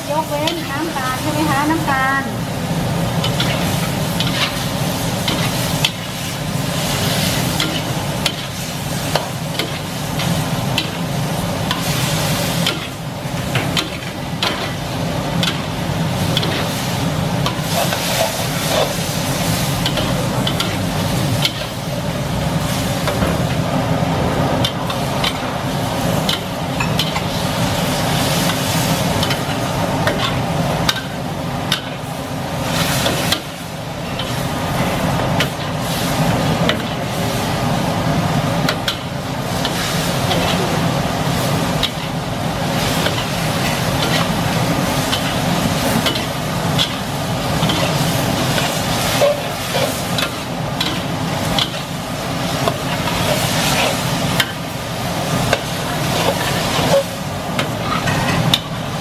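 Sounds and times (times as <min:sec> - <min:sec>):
food sizzling in a wok: 0:00.0 - 0:59.0
metal spatula scraping wok: 0:55.5 - 0:58.7.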